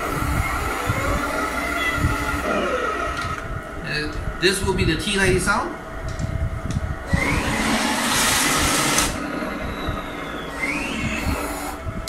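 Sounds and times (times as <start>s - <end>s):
short rising chirp: 9.6s - 11.2s.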